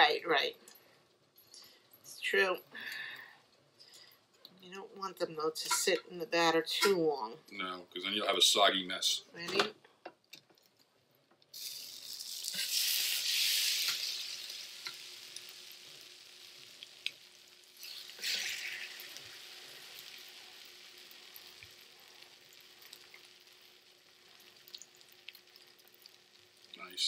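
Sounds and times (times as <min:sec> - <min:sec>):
sandwiches sizzling on grill: 0:11.5 - 0:27.0.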